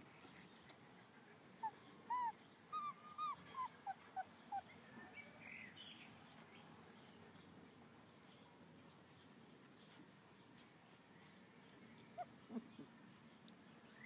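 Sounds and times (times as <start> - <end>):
puppies squeaking: 2.1 - 4.6.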